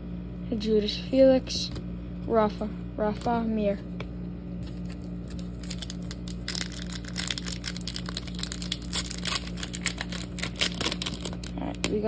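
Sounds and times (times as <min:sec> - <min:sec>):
foil wrappers crinkling: 0:04.6 - 0:12.0.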